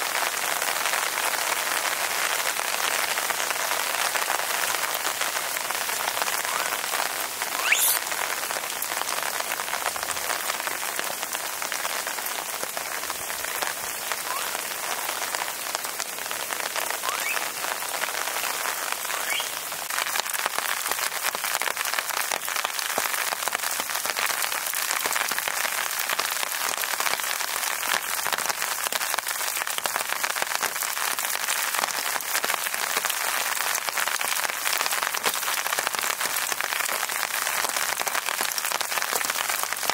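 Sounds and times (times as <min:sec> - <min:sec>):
steady rain falling: 0:00.0 - 0:39.9
brief sharp sound: 0:07.5 - 0:08.0.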